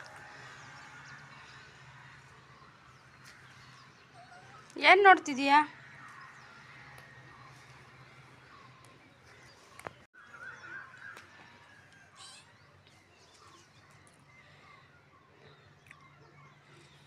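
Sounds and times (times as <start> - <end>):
low steady hum: 0.0 - 4.8
distant bird chirps: 0.0 - 17.0.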